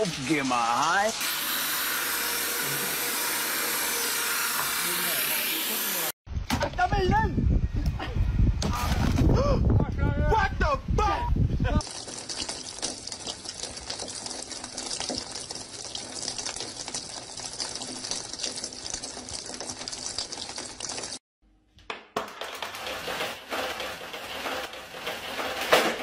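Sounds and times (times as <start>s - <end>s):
water pattering on steel counters: 0.0s - 1.2s, 11.8s - 21.2s.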